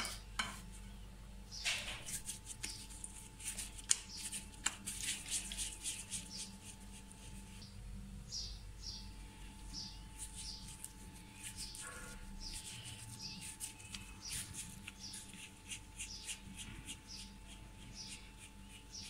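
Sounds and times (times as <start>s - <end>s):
low steady hum: 0.0s - 19.0s
bird chirping: 1.5s - 3.0s, 7.4s - 19.0s
rustling of dough in flour: 1.7s - 7.8s, 9.2s - 19.0s.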